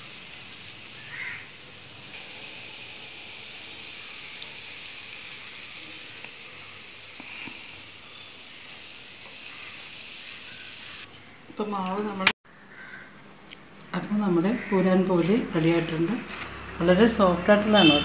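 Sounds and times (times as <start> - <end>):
flatbread sizzling in oil: 0.0 - 11.1.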